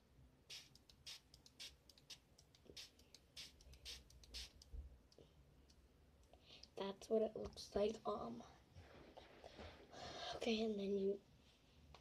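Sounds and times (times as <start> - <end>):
spray bottle spritzes: 0.5 - 4.6.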